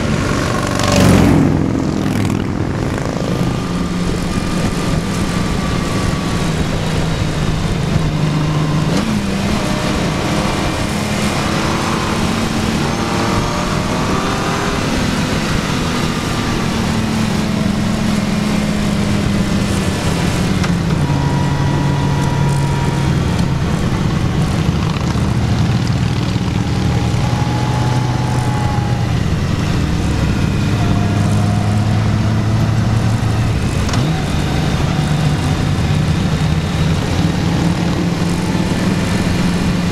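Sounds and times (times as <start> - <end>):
motorcycle engine running: 0.0 - 39.9
wind noise: 0.0 - 39.9.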